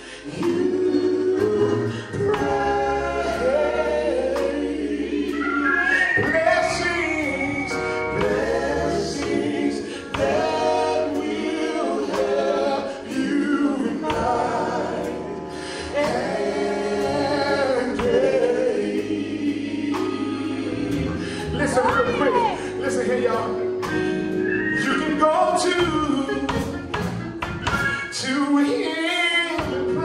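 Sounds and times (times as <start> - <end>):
drums: 0.0 - 30.0
keyboard: 0.0 - 30.0
male group singing harmonies: 0.0 - 30.0
electric bass: 6.2 - 11.4, 12.2 - 28.1.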